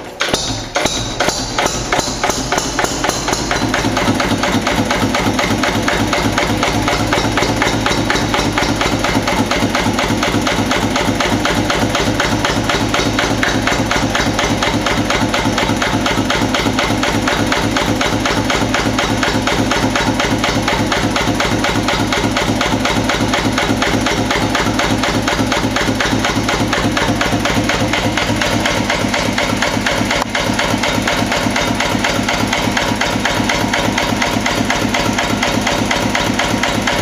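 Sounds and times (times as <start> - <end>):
stationary diesel engine knocking: 0.0 - 37.0.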